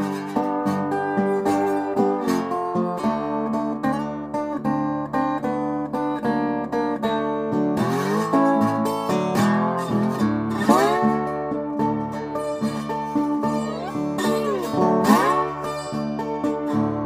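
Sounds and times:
acoustic guitar music: 0.0s - 17.0s.

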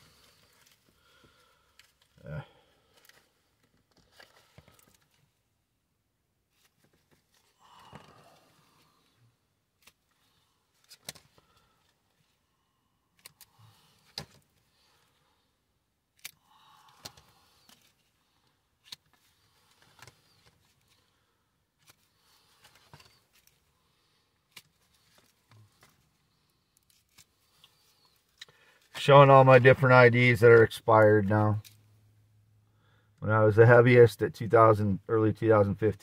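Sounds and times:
plastic cards clicking and rustling: 10.8s - 11.5s, 13.2s - 14.5s, 16.2s - 18.1s, 18.8s - 21.0s, 21.8s - 23.6s, 24.5s - 26.2s, 26.8s - 28.9s.

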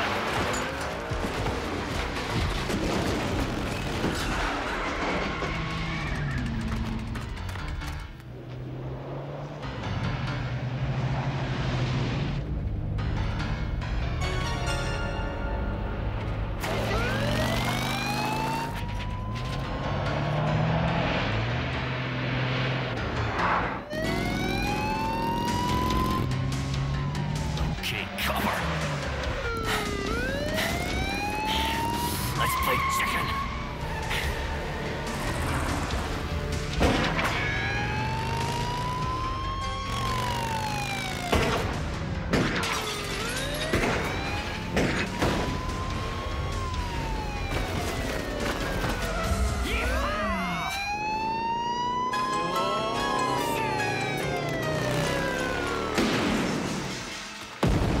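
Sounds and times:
engines running: 0.0s - 58.0s
police siren wailing: 16.2s - 21.9s, 23.6s - 57.2s.

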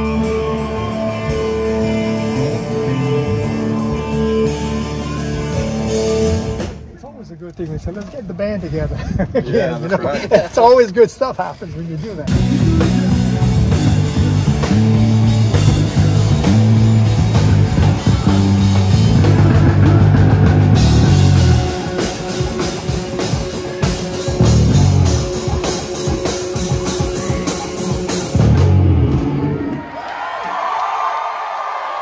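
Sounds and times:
rock band playing: 0.0s - 6.9s, 12.0s - 30.0s.

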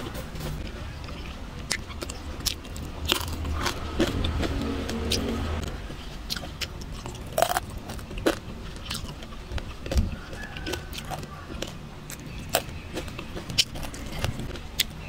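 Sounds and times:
low steady rumble: 0.0s - 10.3s
crispy pork skin crackling: 6.5s - 15.0s.

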